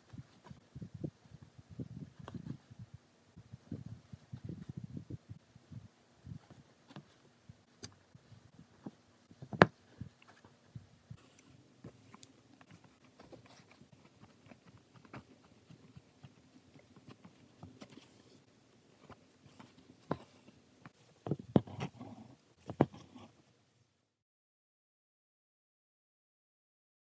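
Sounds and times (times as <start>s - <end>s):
fingers rustling cloth: 6.3s - 23.4s.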